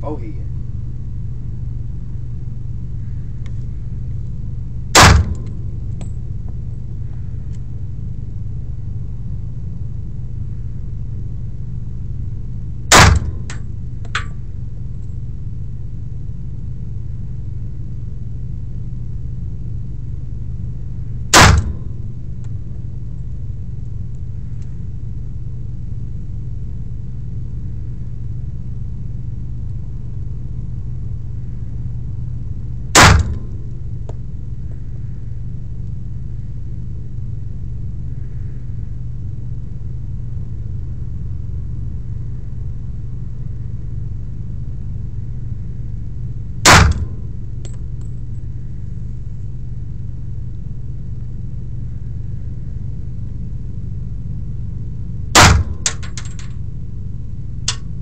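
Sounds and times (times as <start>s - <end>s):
steady low rumble: 0.0s - 58.0s
pistol shots: 5.0s - 5.5s, 12.9s - 13.6s, 21.3s - 21.8s, 33.0s - 33.4s, 46.7s - 47.1s, 55.4s - 56.4s.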